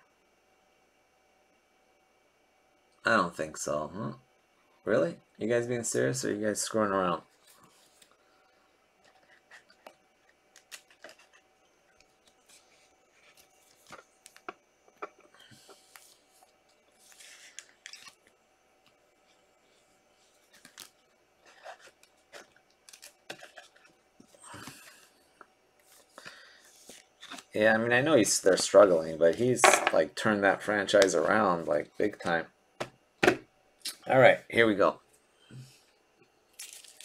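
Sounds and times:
plastic sleeves rustling: 20.0s - 25.1s, 36.5s - 37.0s.

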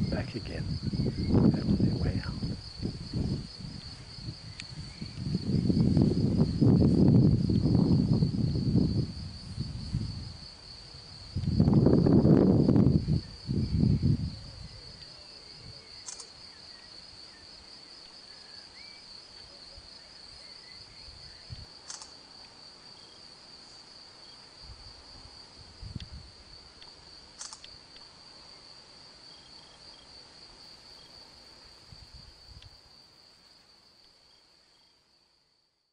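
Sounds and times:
insect high-pitched trill: 0.0s - 25.1s, 25.8s - 35.0s
faint clicks: 16.0s - 16.3s, 26.8s - 28.1s.

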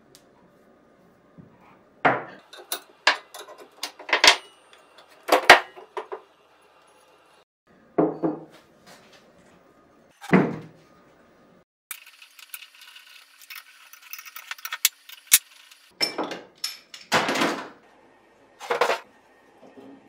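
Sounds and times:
metal tools clanking: 2.4s - 6.2s.

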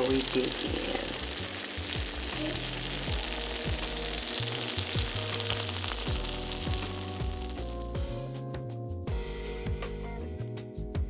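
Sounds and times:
baked pasta sizzling: 0.0s - 8.2s
soft background music: 0.0s - 11.0s.

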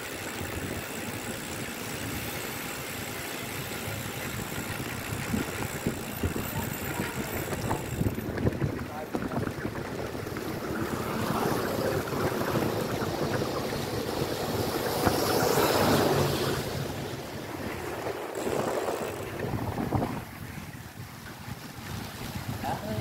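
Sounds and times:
wind rushing over microphone: 3.8s - 23.0s
tyres hissing on wet asphalt: 10.9s - 17.4s.

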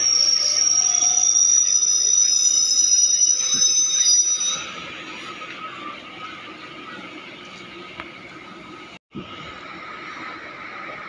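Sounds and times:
train wheels squealing on rails: 0.0s - 7.1s.

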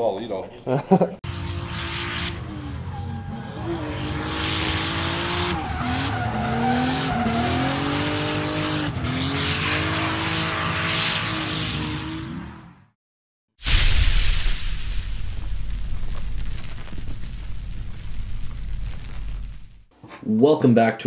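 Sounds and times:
car engine revving hard: 1.2s - 12.6s.

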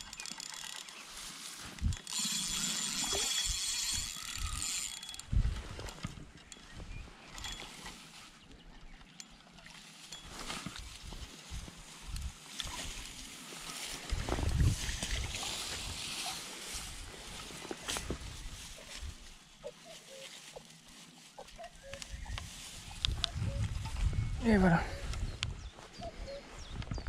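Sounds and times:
rustling of grass and net: 0.0s - 2.8s, 9.6s - 24.2s.

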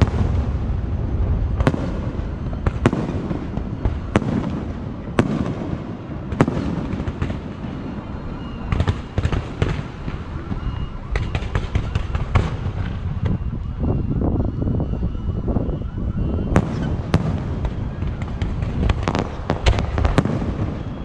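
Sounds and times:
low rumble: 0.0s - 5.2s
crackling pops: 16.6s - 20.6s
firework shells bursting: 16.6s - 21.0s.

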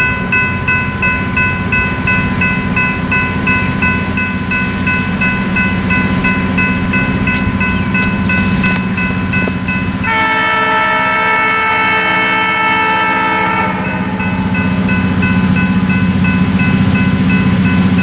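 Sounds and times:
crossing bell dinging: 0.0s - 18.0s
train horn blast: 10.0s - 14.3s.

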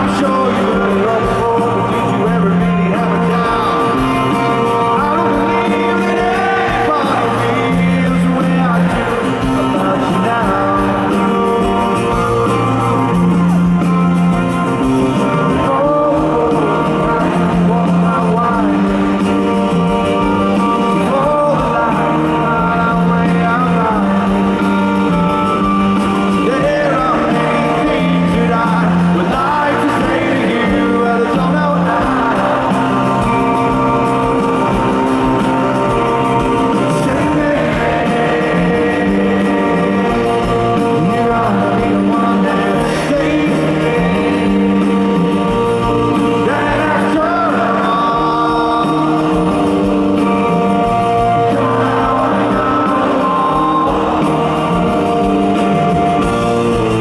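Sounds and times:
man singing lead vocal: 0.0s - 57.0s
rock band playing: 0.0s - 57.0s.

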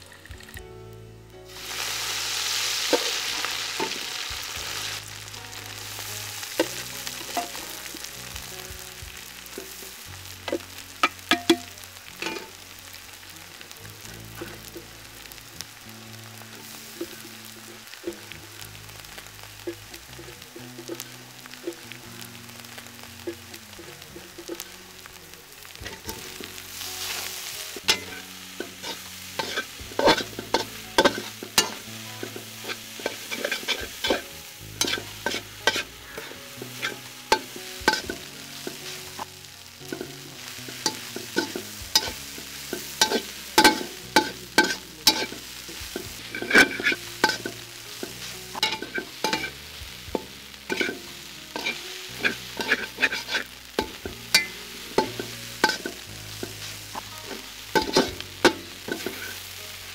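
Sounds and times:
light sizzle: 0.0s - 59.9s
metal spatula scraping steel pan: 27.9s - 39.2s, 39.9s - 59.4s.

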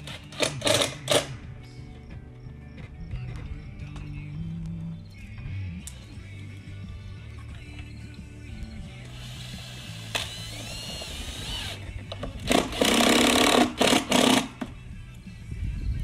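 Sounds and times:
cordless drill driving screw: 0.0s - 1.3s, 9.0s - 14.7s.

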